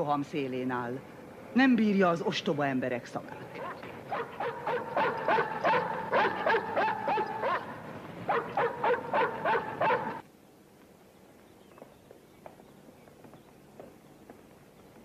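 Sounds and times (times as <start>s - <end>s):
dog barking rapidly: 3.6s - 10.2s
faint footsteps: 10.1s - 15.0s.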